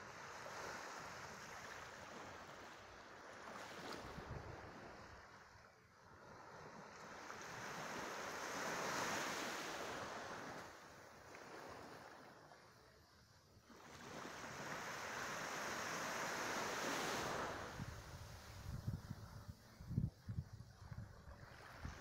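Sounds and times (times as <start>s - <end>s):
small waves lapping on sand: 0.0s - 22.0s
wind rumble on microphone: 3.7s - 5.3s, 16.8s - 22.0s.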